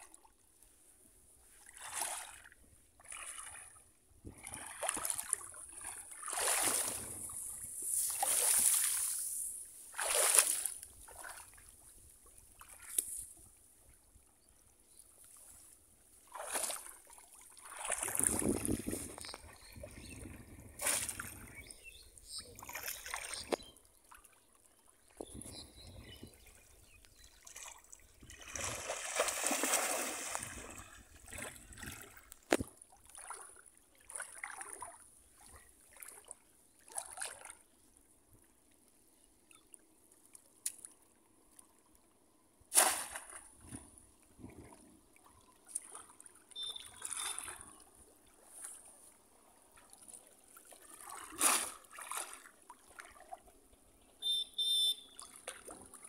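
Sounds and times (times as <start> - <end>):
water splashing and sloshing: 0.0 - 37.8, 42.7 - 56.0
basket slammed into water: 42.7 - 43.4.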